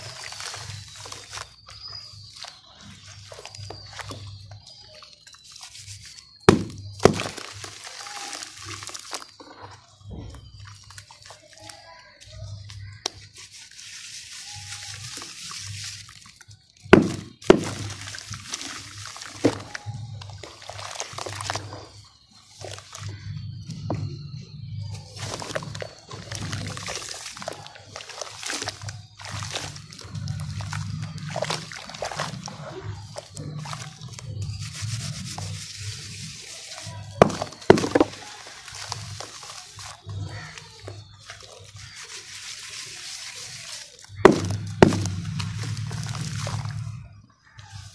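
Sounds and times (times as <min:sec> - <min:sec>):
wet dirt crackling: 0:00.0 - 0:47.9
chunk splashing into water: 0:06.5 - 0:07.6, 0:17.0 - 0:18.3, 0:37.2 - 0:38.2, 0:44.3 - 0:46.8
pieces splashing into water: 0:06.5 - 0:09.5, 0:14.5 - 0:22.0, 0:25.2 - 0:34.3, 0:35.4 - 0:47.1.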